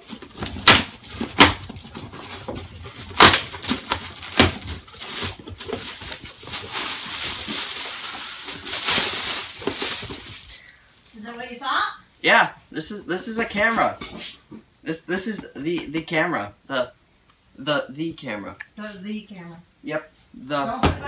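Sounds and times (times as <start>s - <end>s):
packing tape ripping: 0.0s - 10.5s
bubble wrap crinkling: 0.0s - 11.2s
cardboard box tearing open: 0.2s - 7.5s.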